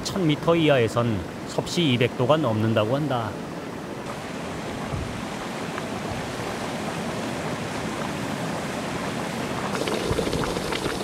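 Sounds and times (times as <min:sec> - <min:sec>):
hot mud gurgling and popping: 0:09.5 - 0:11.0
steam vent hissing: 0:09.7 - 0:11.0.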